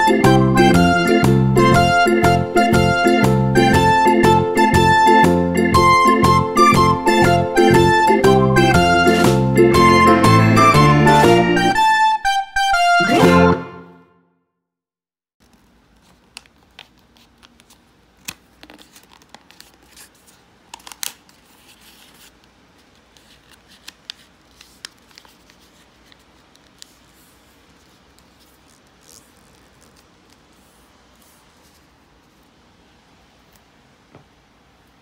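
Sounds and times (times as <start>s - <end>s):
paper being folded and creased: 15.4s - 32.4s.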